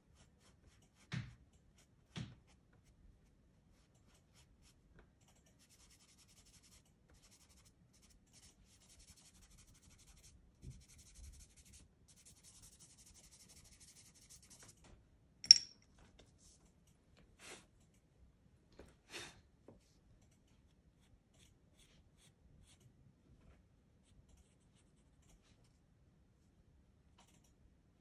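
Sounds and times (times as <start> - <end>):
pastel scratching on paper: 5.6 - 14.7.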